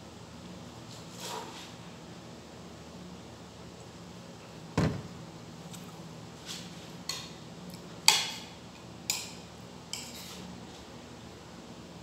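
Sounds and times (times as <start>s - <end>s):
metal spoon scraping a plate: 9.1s - 10.4s.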